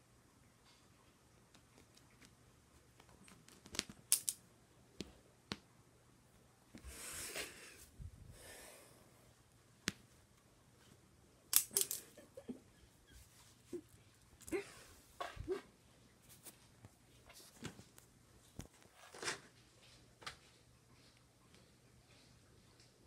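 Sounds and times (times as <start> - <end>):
rubbing rustling noise: 16.2 - 18.0.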